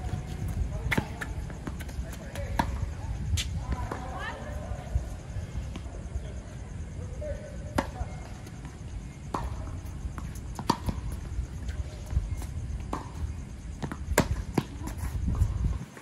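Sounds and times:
ball bouncing on hard court: 0.0 - 2.8, 13.8 - 15.0
racket hitting tennis ball: 7.7 - 11.9, 12.8 - 15.0.

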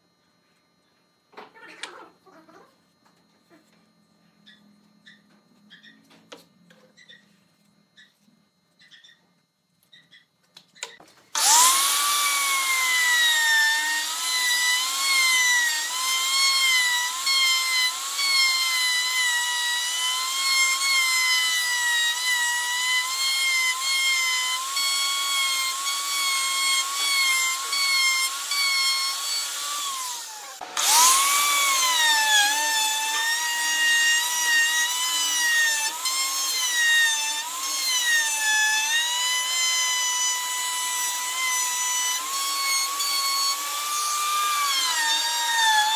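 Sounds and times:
router motor whining: 11.3 - 45.9.

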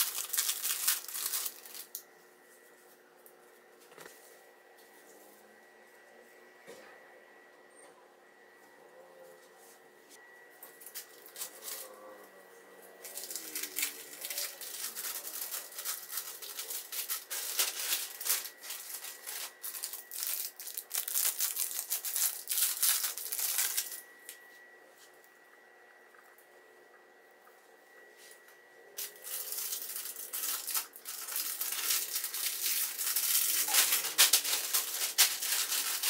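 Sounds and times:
plastic packaging crinkling: 0.0 - 2.0, 10.8 - 11.9, 13.0 - 24.0, 29.0 - 36.0.

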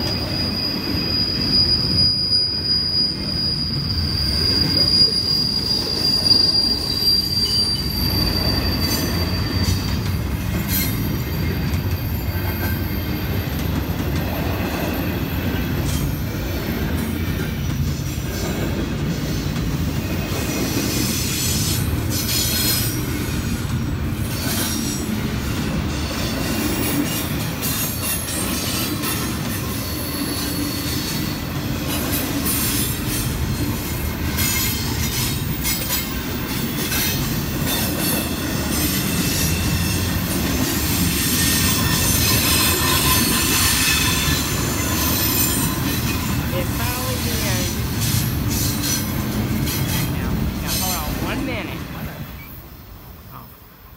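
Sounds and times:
high-pitched squeal and hiss: 0.0 - 14.1, 24.2 - 51.7
train wheels rumbling on rails: 0.0 - 53.9.

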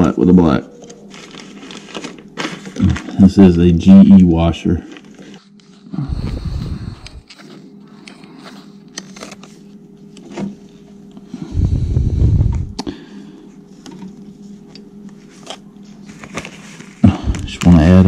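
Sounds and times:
faint steady hum: 0.0 - 18.0
low rumble: 11.6 - 12.8.

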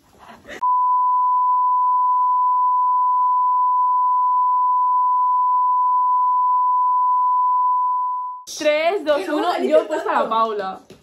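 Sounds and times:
censor bleep tone: 0.6 - 8.4.

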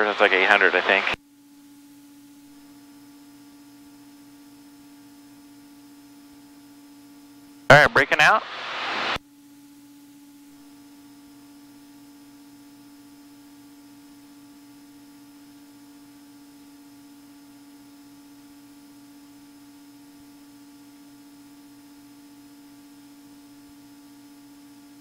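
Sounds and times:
airplane cabin drone: 0.0 - 1.2.

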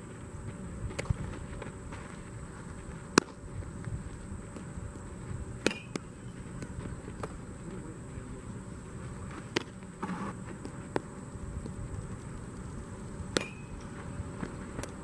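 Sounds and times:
baseball smacking into glove: 3.1 - 3.4, 5.6 - 7.4, 9.3 - 11.1.

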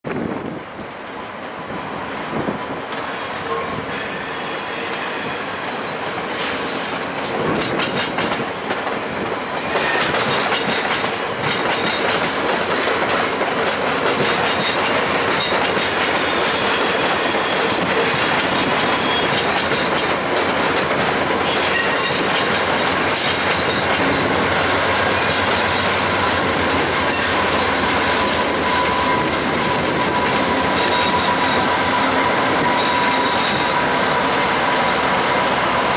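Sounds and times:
diesel locomotive passing: 0.1 - 35.9
train wheels clicking over rail joints: 4.9 - 35.9
high-pitched wheel squeal: 23.7 - 35.2.

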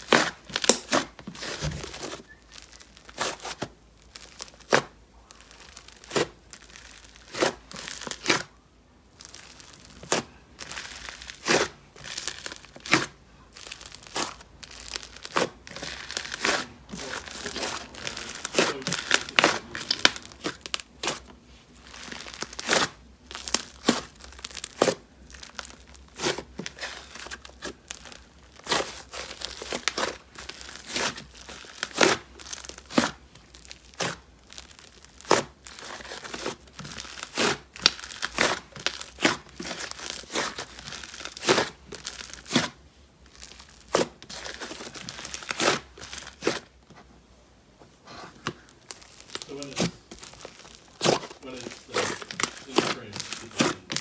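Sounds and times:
slime squishing: 0.0 - 46.9, 47.9 - 54.0
slime air pockets popping: 9.2 - 46.8, 48.4 - 54.0.

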